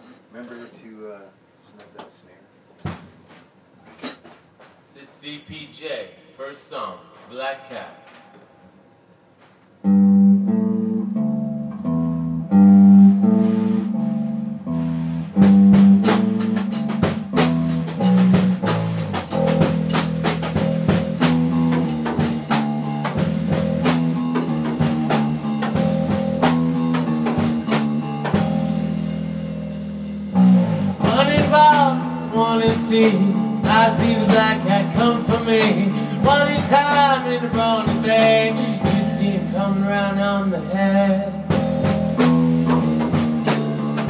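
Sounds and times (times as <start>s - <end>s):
drum kit with cymbals and snare: 2.8s - 5.9s, 12.8s - 39.5s, 41.5s - 44.0s
band playing blues rock: 9.8s - 44.0s
plucked bass riff: 9.8s - 44.0s.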